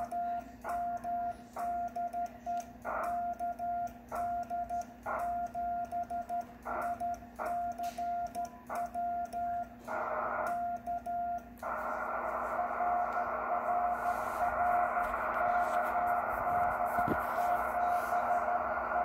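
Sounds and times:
morse code tone: 0.0 - 19.0
receiver hiss: 11.6 - 19.0.

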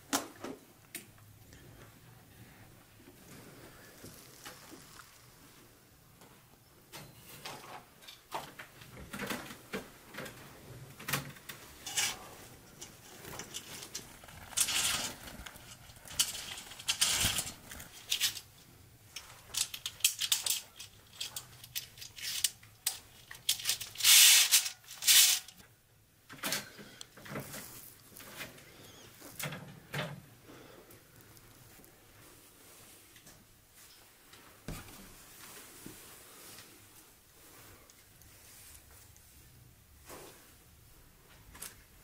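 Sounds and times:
curtain fabric rustling: 3.1 - 6.1, 9.9 - 25.6
fittings scraping along metal rod: 11.8 - 18.4, 23.5 - 25.6.

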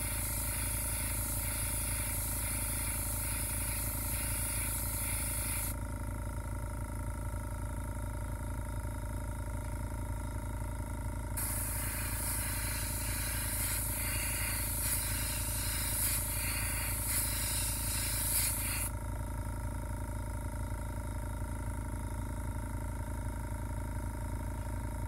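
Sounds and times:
airbrush spraying hiss: 0.0 - 5.8, 11.4 - 18.9
low machine hum: 0.0 - 25.0.

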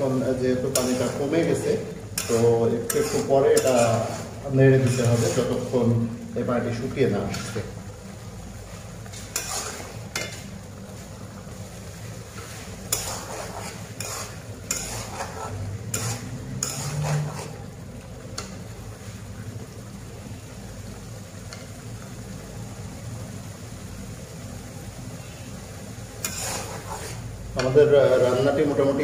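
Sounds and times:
metal spatula scraping a pan: 0.0 - 5.9, 7.2 - 7.7, 9.0 - 11.1, 12.3 - 17.7, 26.2 - 29.0.

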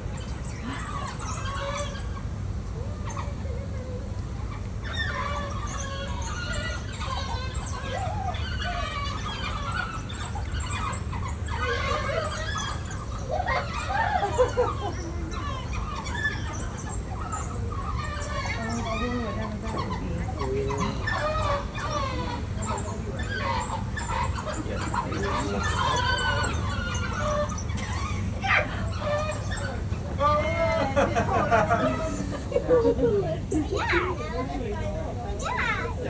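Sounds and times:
wild dogs twittering and squealing: 0.0 - 36.0.

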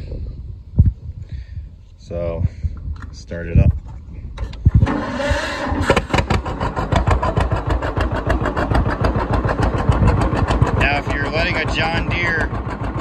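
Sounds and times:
tractor engine running: 3.8 - 13.0
electric starter cranking: 4.4 - 13.0.

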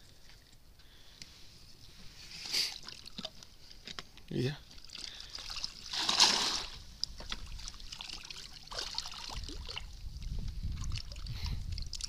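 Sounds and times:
water splash: 4.8 - 10.0.

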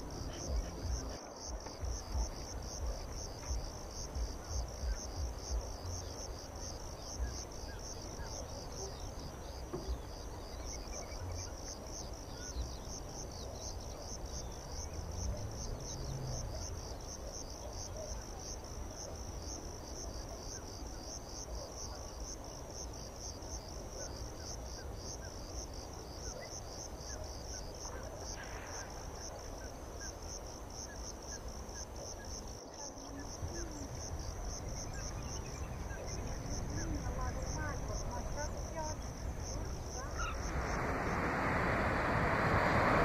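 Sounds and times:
insects chirring: 0.0 - 43.0
low uneven rumble: 33.2 - 43.0.

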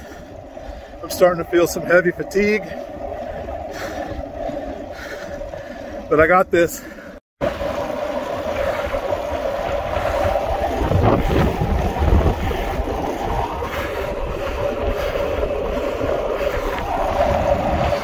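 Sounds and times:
bicycle tyre noise on asphalt: 0.0 - 6.0, 6.8 - 18.0
wind over microphone: 7.5 - 18.0.

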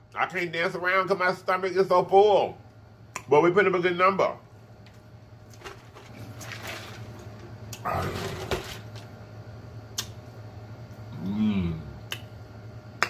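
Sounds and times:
sharp mouth clicks: 9.9 - 10.2, 12.0 - 12.3.

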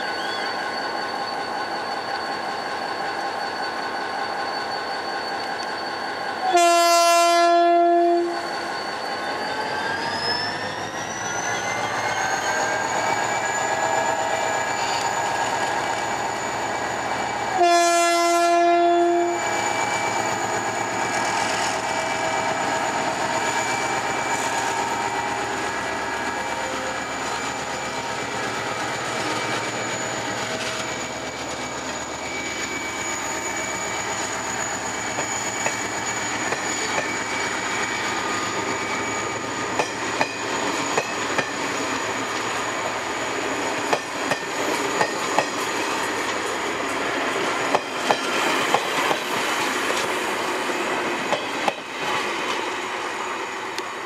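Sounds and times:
locomotive horn blast: 6.5 - 8.3, 17.6 - 19.4
train wheels clicking over rail joints: 39.6 - 42.6, 43.6 - 50.3, 51.2 - 52.6.

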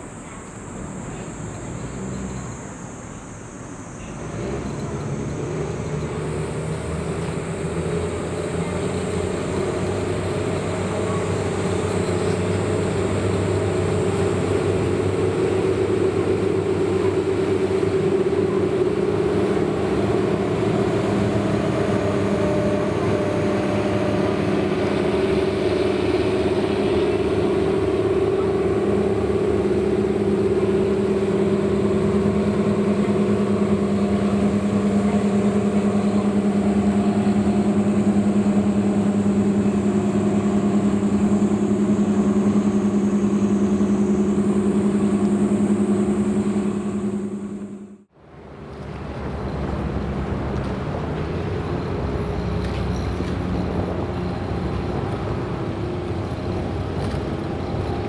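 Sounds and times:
ferry engine humming: 0.0 - 58.0.

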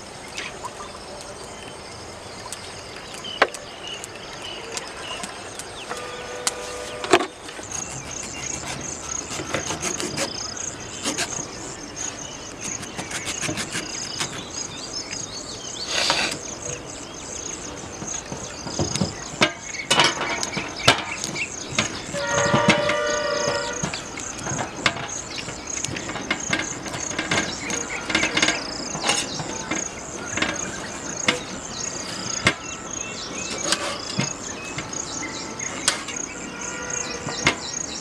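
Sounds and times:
insects chirring: 0.0 - 38.0.

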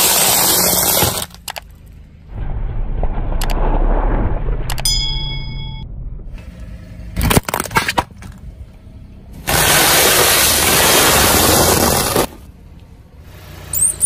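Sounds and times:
sharp cracks: 2.3 - 5.4.

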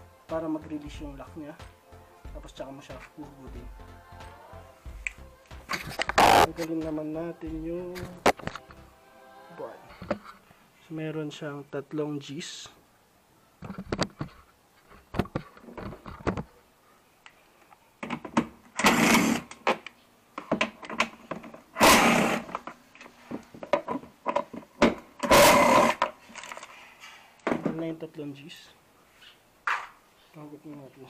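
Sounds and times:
cordless drill bursts: 18.8 - 19.5, 21.8 - 22.5, 25.2 - 26.0.

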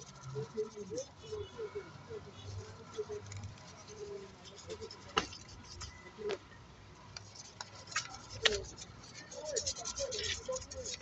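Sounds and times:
hand tool scratching wheel: 7.5 - 11.0.

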